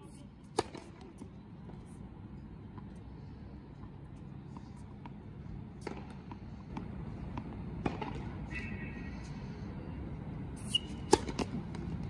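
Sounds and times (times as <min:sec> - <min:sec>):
tennis ball bouncing on hard court: 0:10.8 - 0:12.0.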